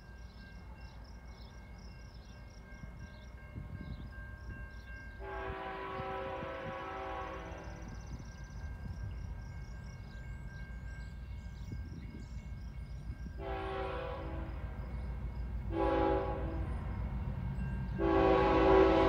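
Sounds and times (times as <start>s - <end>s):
low locomotive rumble: 0.0s - 19.0s
distant train air horn: 5.2s - 8.1s, 13.4s - 14.8s, 15.7s - 16.9s, 17.9s - 19.0s.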